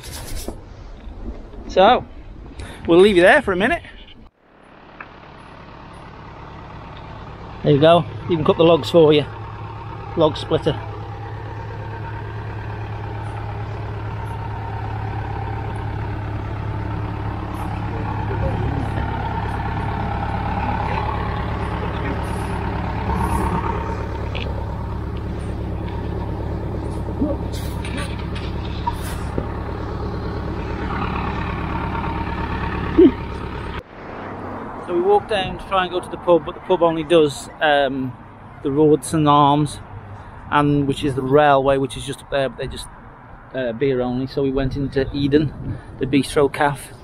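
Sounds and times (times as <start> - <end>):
tractor engine throbbing: 4.3 - 37.5.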